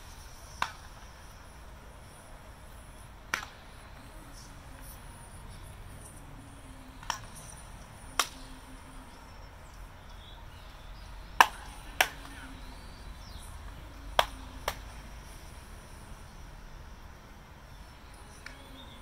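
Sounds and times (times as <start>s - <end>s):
baseballs smacking into gloves: 0.5s - 1.1s, 3.3s - 4.1s, 7.0s - 7.3s, 8.1s - 8.6s, 11.4s - 12.5s, 14.1s - 15.0s.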